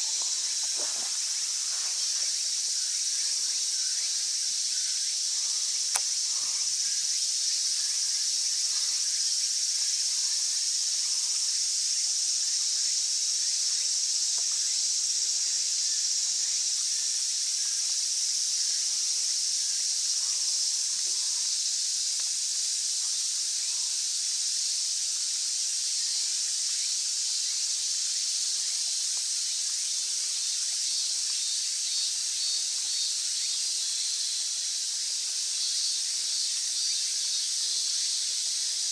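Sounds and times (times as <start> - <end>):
cicadas droning: 0.0 - 38.9
sharp click: 5.9 - 6.1.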